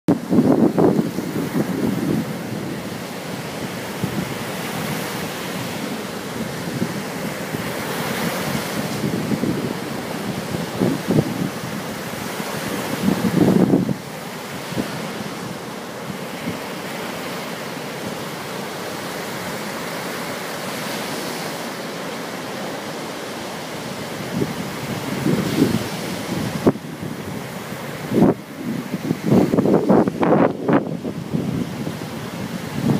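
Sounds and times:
wind buffeting microphone: 0:00.1 - 0:17.0, 0:23.8 - 0:32.9
waves washing up a beach: 0:00.1 - 0:32.9.

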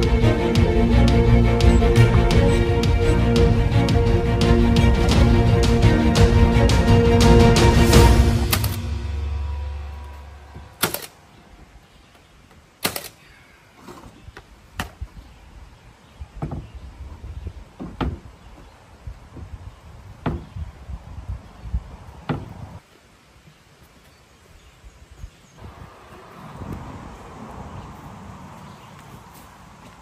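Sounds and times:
wooden knocks and thumps: 0:16.4 - 0:16.8, 0:17.7 - 0:18.6, 0:20.2 - 0:20.6, 0:22.3 - 0:22.6.

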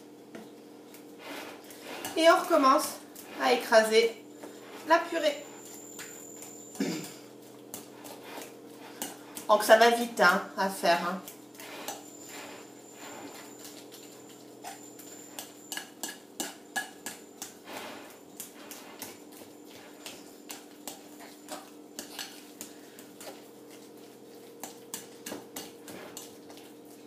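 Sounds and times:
fork clinking against ceramic bowl: 0:13.6 - 0:17.6, 0:20.0 - 0:22.6.

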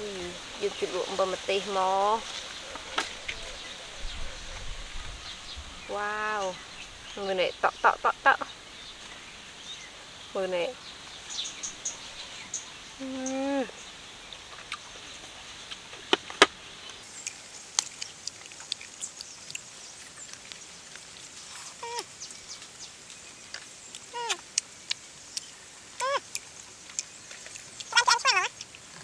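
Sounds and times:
fruit being peeled and eaten: 0:14.4 - 0:29.0
short animal calls: 0:27.9 - 0:28.6.

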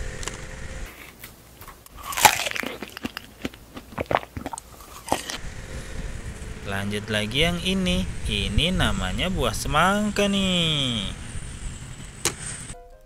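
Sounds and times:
person biting and chewing strawberries: 0:00.2 - 0:05.4.

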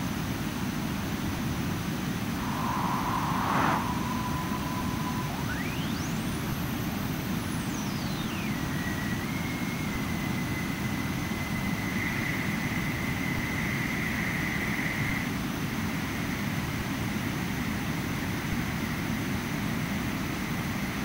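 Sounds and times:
synthesized jet engine noise: 0:02.2 - 0:11.2
whistling tone sweeping up: 0:02.3 - 0:12.0.

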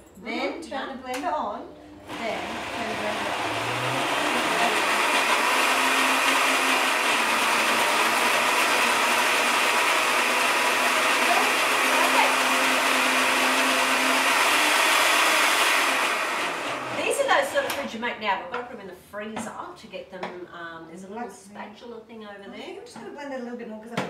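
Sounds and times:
blender running: 0:01.9 - 0:17.8.

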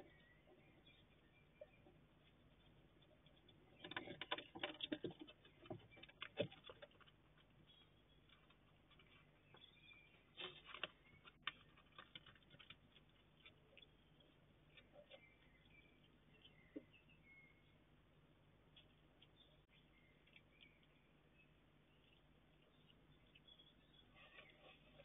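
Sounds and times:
rustling over ground: 0:00.0 - 0:15.8, 0:23.7 - 0:25.0
hedgehog crunching dry food: 0:02.1 - 0:16.8.

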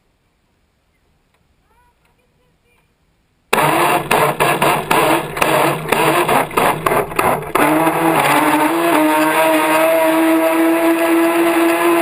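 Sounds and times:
sharp cracks: 0:03.5 - 0:08.4
model speedboat motor running: 0:03.5 - 0:12.0.

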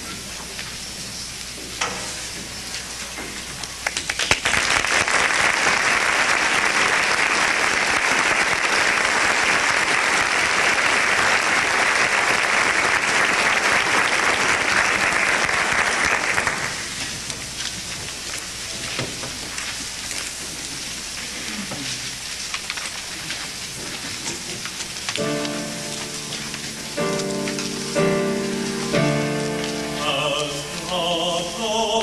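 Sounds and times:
audience applauding: 0:03.8 - 0:17.2.

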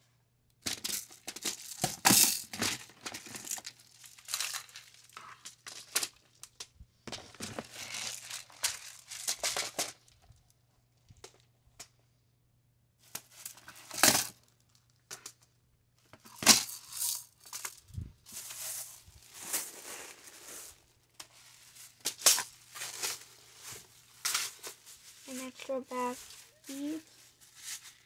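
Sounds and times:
plastic bags crinkling: 0:00.7 - 0:06.6, 0:07.3 - 0:10.4, 0:16.4 - 0:28.0.

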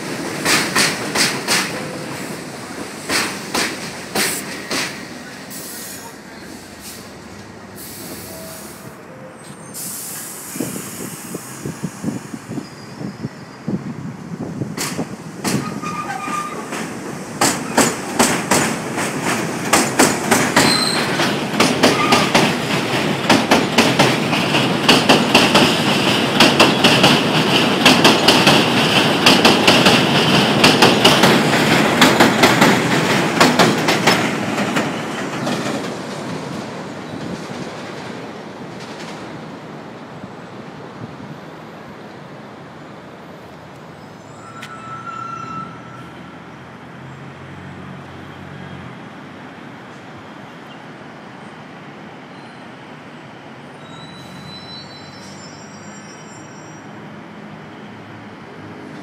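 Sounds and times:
subway train passing: 0:00.0 - 0:59.0
distant high squeal: 0:07.8 - 0:11.6, 0:12.5 - 0:13.8, 0:15.6 - 0:16.7, 0:20.6 - 0:21.2, 0:21.9 - 0:22.4, 0:44.0 - 0:46.4, 0:53.7 - 0:57.0
high wheel squeal: 0:07.8 - 0:11.7, 0:12.5 - 0:13.8, 0:15.6 - 0:16.7, 0:20.6 - 0:21.2, 0:21.9 - 0:22.4, 0:44.0 - 0:46.4, 0:53.7 - 0:57.1.

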